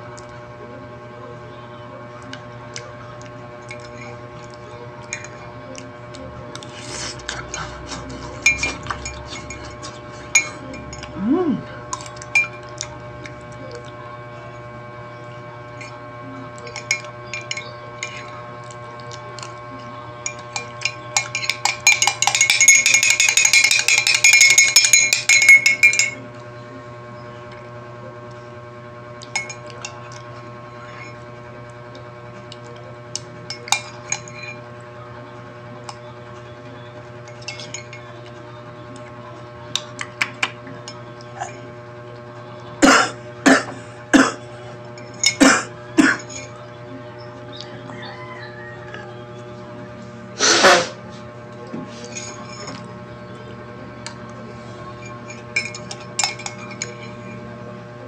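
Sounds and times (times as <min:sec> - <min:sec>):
metal spoon clinking on ceramic mug: 0:05.0 - 0:05.4, 0:08.4 - 0:11.1, 0:11.9 - 0:12.6, 0:16.6 - 0:18.3, 0:20.2 - 0:26.2, 0:29.2 - 0:30.0, 0:33.5 - 0:34.7, 0:37.2 - 0:38.1, 0:45.0 - 0:46.6, 0:52.0 - 0:52.9, 0:55.0 - 0:57.3.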